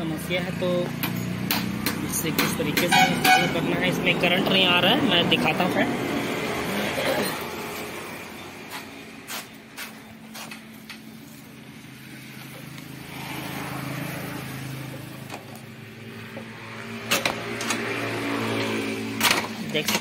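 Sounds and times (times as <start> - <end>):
sharp clicks and knocks: 1.0 - 3.6, 16.3 - 18.0, 19.1 - 20.0.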